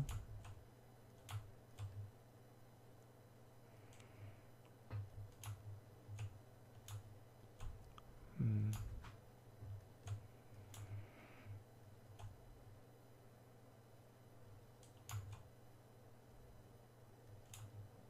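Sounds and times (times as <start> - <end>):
mouse and keyboard clicking: 0.0 - 2.1, 4.9 - 8.0, 14.8 - 15.5, 17.3 - 17.8
low electrical hum: 0.0 - 18.0.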